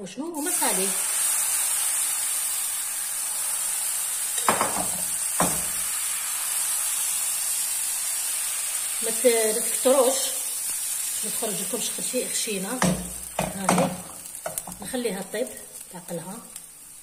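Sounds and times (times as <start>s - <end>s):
batter sizzling in frying pan: 0.4s - 17.0s
spoon knocking against pan: 4.4s - 5.8s, 12.8s - 14.8s.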